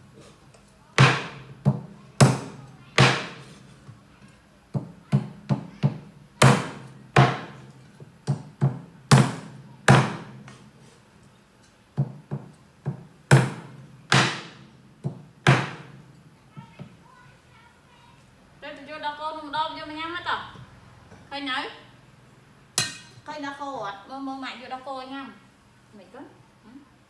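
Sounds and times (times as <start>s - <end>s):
cleaver chopping on wooden board: 1.0s - 3.4s, 4.8s - 7.6s, 8.3s - 10.6s, 12.0s - 15.9s.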